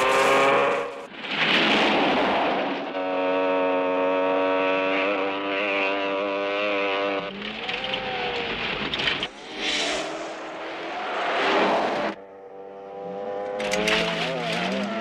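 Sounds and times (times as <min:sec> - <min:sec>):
motorcycle engine passing by: 0:04.1 - 0:08.4, 0:09.3 - 0:15.0
tyres on gravel: 0:13.5 - 0:15.0.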